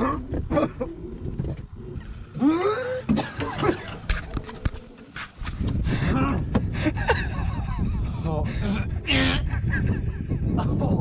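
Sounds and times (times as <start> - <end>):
man groaning: 2.4 - 3.1.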